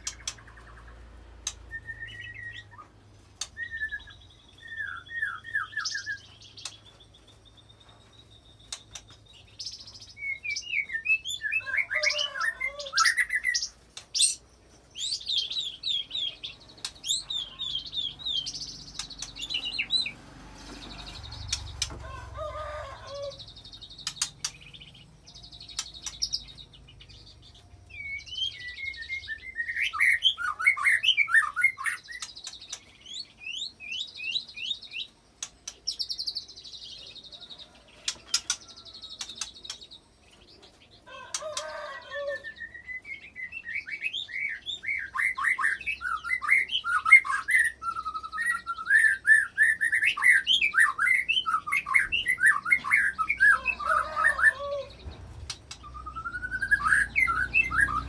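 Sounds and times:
sharp clicks: 23.9 - 24.8.

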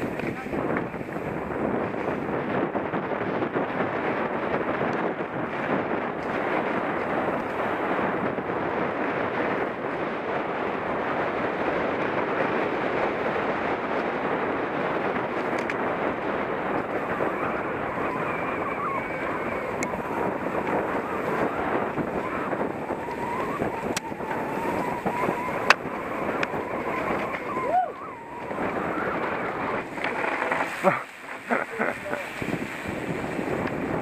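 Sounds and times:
wind rushing over microphone: 0.0 - 34.0
thin wavering whine: 16.6 - 32.2.

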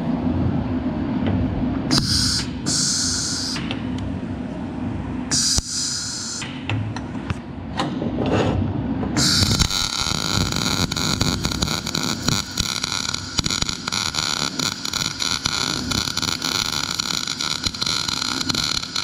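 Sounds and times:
low machine hum: 0.0 - 19.0
welding arc crackling hiss: 1.9 - 3.8, 5.3 - 6.6, 9.2 - 19.0.

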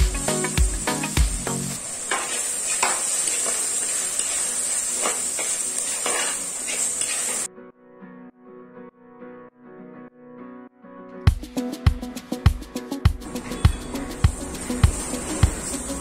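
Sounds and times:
background music: 0.0 - 1.8, 7.5 - 16.0
vegetables sizzling in oil: 0.0 - 7.5, 13.3 - 16.0
spatula scraping a pot: 2.1 - 7.5.

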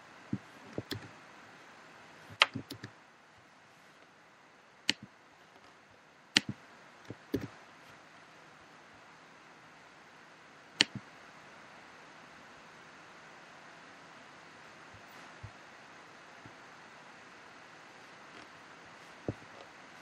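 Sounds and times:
faint steady hiss: 0.0 - 20.0
sharp clicks: 0.7 - 1.1, 2.4 - 2.9, 4.9 - 5.1, 6.4 - 7.5, 10.8 - 11.0.

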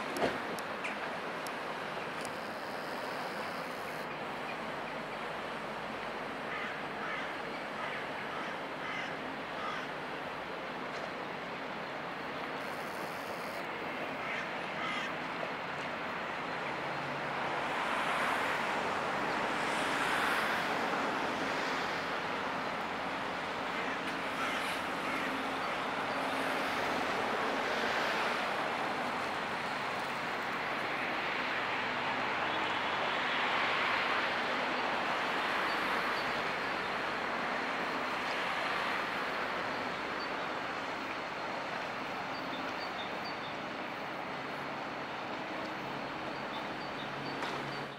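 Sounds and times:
water rushing: 0.0 - 12.7
ship diesel engines droning: 0.0 - 17.7, 18.6 - 47.9
crow cawing: 6.5 - 9.9, 14.2 - 15.1, 23.8 - 25.3.

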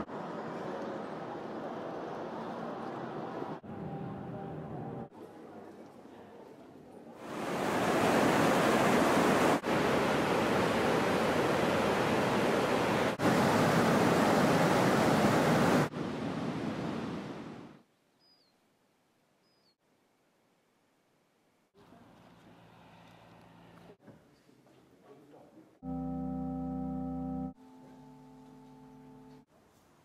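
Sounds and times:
water rushing over a weir: 7.2 - 16.0.

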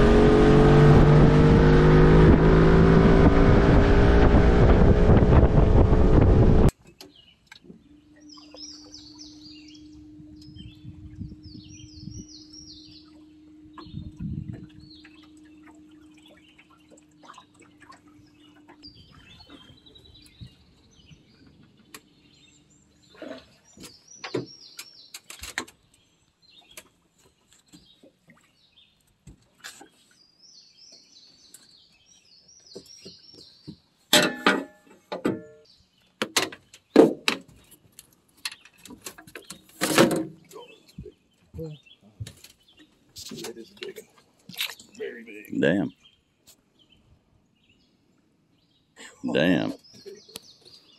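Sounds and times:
electric trolling motor humming: 0.0 - 6.7
small birds chirping: 7.0 - 34.0, 40.5 - 50.9
knocks and clatter in metal boat: 36.2 - 44.0.

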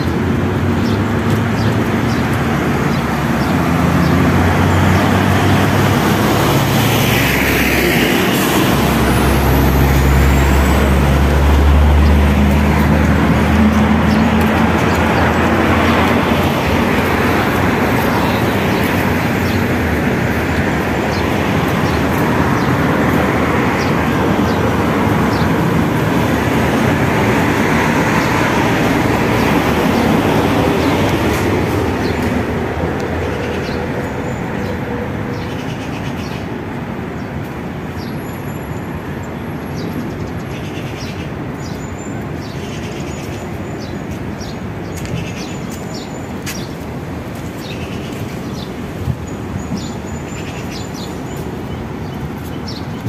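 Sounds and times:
passing traffic rumble: 0.0 - 53.0
small birds chirping: 12.0 - 26.4, 37.2 - 53.0.

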